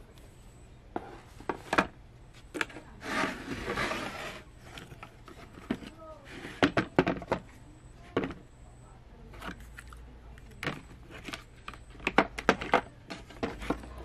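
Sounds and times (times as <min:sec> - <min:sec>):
plastic case knocks and clatters: 0:12.0 - 0:13.9.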